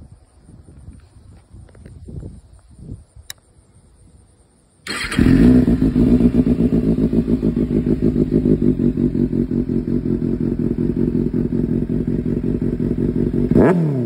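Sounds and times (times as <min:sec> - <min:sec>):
motorcycle engine starting and idling: 0:04.8 - 0:14.0.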